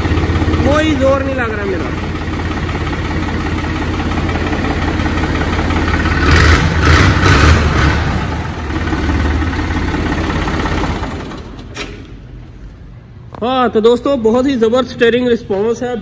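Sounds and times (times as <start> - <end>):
tractor diesel engine idling: 0.0 - 11.7.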